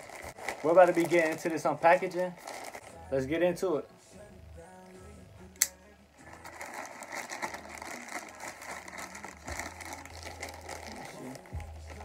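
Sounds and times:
plastic bag crinkling: 0:00.0 - 0:03.1, 0:06.2 - 0:12.0.

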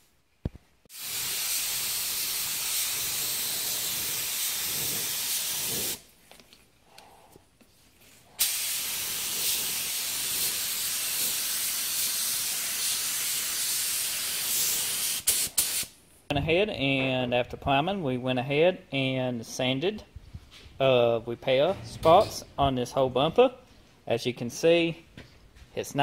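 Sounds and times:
paint spray gun hissing: 0:00.9 - 0:06.0, 0:08.4 - 0:15.9.

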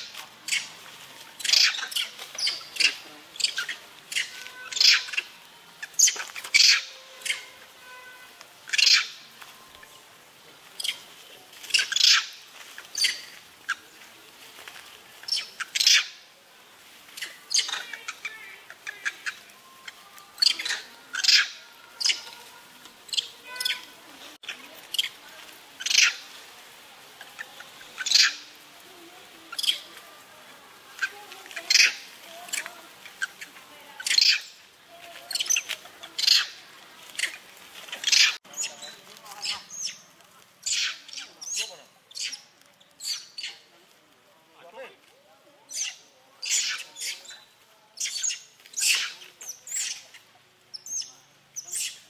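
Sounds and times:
shrill chirping animal calls: 0:00.0 - 0:00.8, 0:01.4 - 0:09.3, 0:10.8 - 0:13.8, 0:15.2 - 0:16.2, 0:17.1 - 0:25.2, 0:25.8 - 0:26.3, 0:27.2 - 0:28.6, 0:29.5 - 0:30.0, 0:30.9 - 0:43.7, 0:45.7 - 0:47.4, 0:48.0 - 0:50.2.

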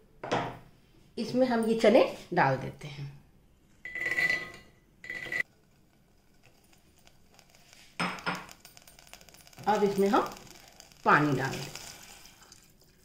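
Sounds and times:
metal clinking on metal: 0:03.9 - 0:11.8
chickpeas pattering into metal pot: 0:05.4 - 0:13.0.

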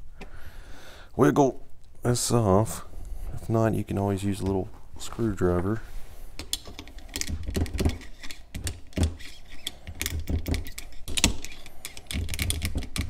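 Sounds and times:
screwdriver prying metal sprocket: 0:06.5 - 0:13.0.

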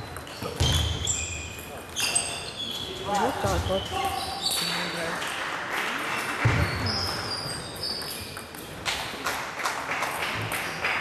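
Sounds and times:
table tennis balls clicking: 0:07.7 - 0:09.1.

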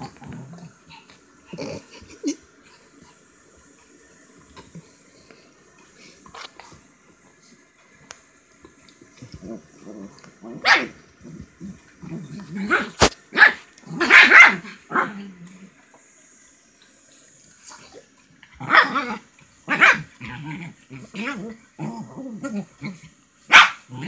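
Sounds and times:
dogs growling: 0:00.0 - 0:03.1, 0:09.0 - 0:15.8, 0:17.7 - 0:23.2
small dogs barking: 0:09.2 - 0:11.7, 0:12.4 - 0:15.2, 0:18.6 - 0:21.6, 0:22.4 - 0:24.0.

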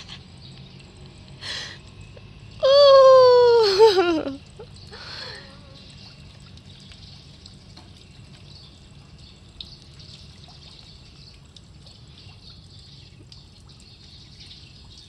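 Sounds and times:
water trickling in a canal: 0:00.0 - 0:15.0.

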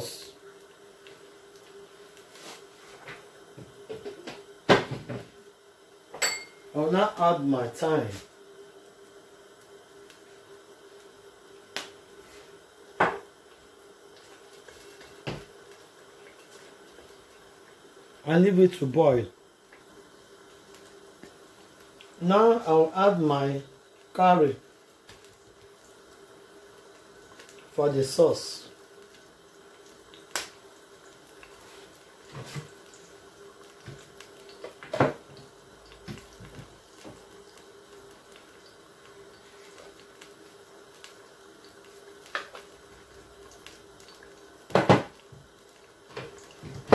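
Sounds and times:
faint steady hum: 0:00.0 - 0:46.9
sauce bubbling and popping: 0:19.4 - 0:22.2, 0:28.8 - 0:46.9.

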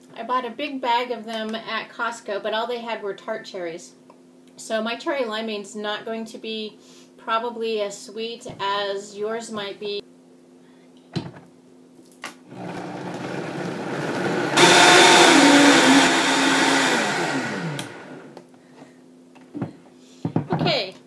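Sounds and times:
blender crushing frozen fruit: 0:12.5 - 0:18.4.

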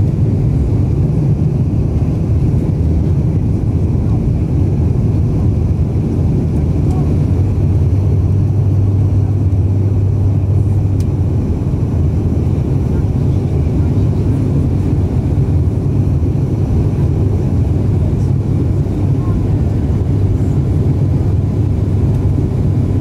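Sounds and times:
turboprop cabin drone: 0:00.0 - 0:23.0.

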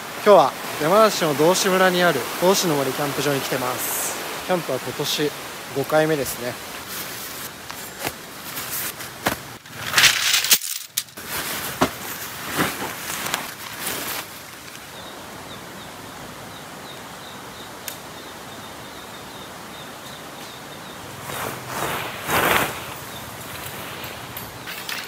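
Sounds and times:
steady outdoor hiss: 0:00.0 - 0:25.0
tent rustling and handling: 0:06.4 - 0:14.9, 0:21.0 - 0:25.0
faint high ticks: 0:17.8 - 0:18.0.

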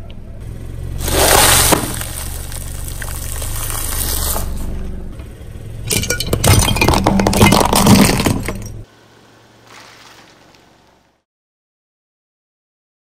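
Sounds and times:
low car hum: 0:00.0 - 0:11.2
tyre crushing plastic figurine: 0:01.0 - 0:04.5, 0:06.0 - 0:08.8.

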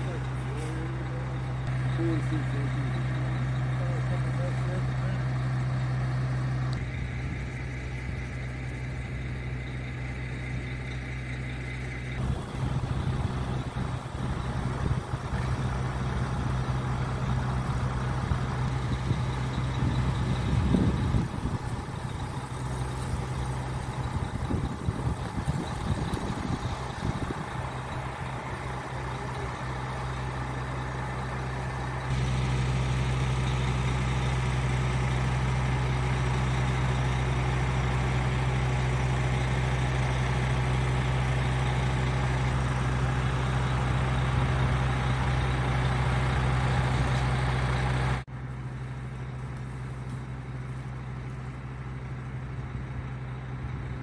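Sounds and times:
pump truck droning: 0:00.0 - 0:54.0
rumbling noise on microphone: 0:12.2 - 0:30.3.

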